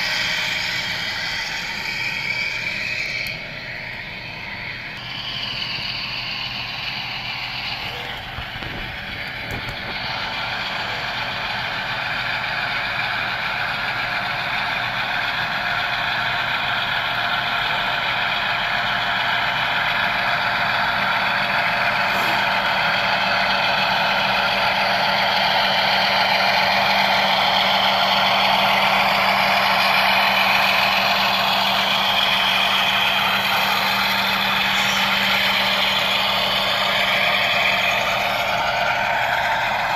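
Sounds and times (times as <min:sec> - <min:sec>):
steady low hum: 0:00.0 - 0:14.3
simulated diesel engine sound: 0:00.0 - 0:39.9.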